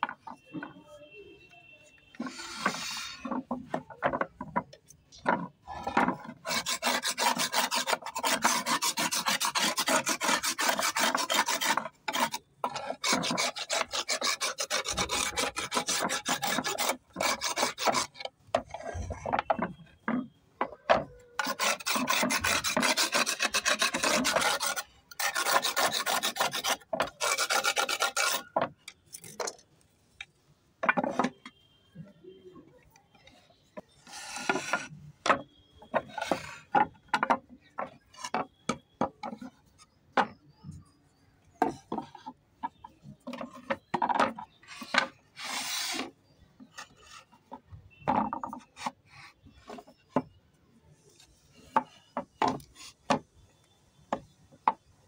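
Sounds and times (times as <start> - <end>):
knife blade rasping on stone: 6.4 - 18.3, 21.4 - 28.5.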